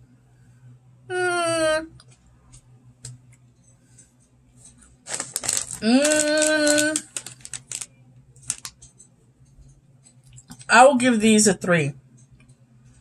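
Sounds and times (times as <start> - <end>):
woman humming: 1.1 - 2.0, 5.8 - 7.1
small clicks: 4.7 - 9.1
rustling: 5.0 - 8.8.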